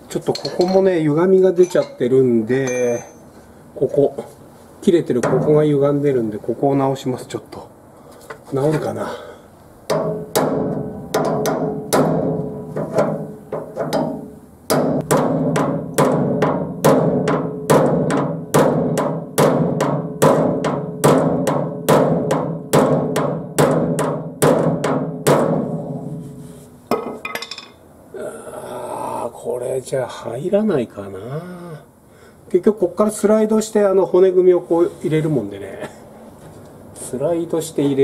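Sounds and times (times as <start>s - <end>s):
hammer beating sheet steel: 9.9s - 27.2s.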